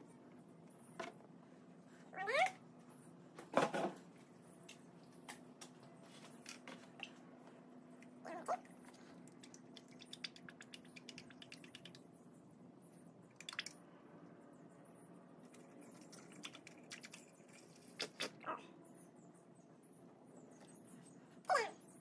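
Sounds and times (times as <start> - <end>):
small ticks: 9.4 - 12.0.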